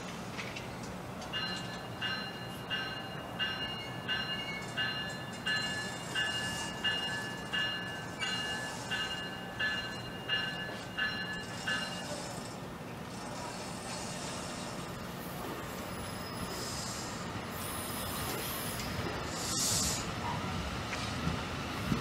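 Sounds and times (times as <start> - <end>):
low train hum: 0.0 - 22.0
train bell ringing: 1.2 - 12.7.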